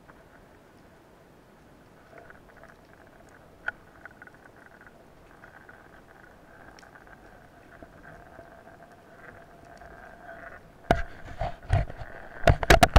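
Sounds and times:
faint steady hum: 0:00.0 - 0:12.9.

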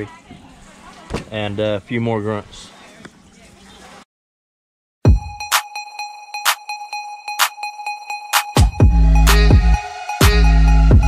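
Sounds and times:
electronic music with steady beat: 0:05.0 - 0:11.0.

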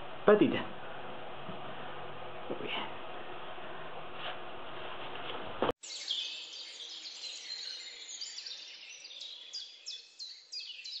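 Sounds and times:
room noise: 0:00.0 - 0:05.8
birds chirping: 0:05.8 - 0:11.0.

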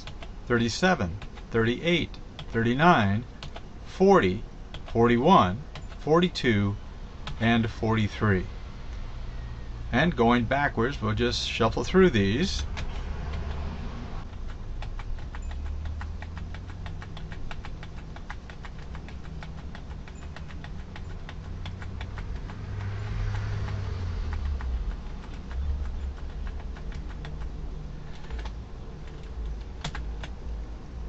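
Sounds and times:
rapid computer clicking: 0:00.0 - 0:03.7, 0:04.3 - 0:06.4, 0:07.2 - 0:07.6, 0:12.0 - 0:30.5
steady low hum: 0:00.0 - 0:31.0.

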